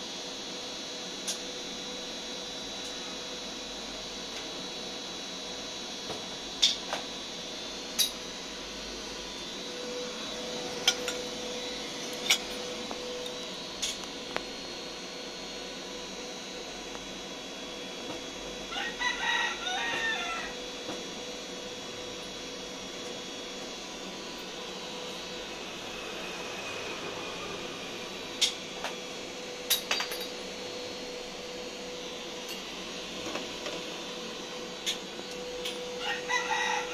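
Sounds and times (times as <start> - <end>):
rooster crowing: 18.7 - 20.6, 36.0 - 36.9.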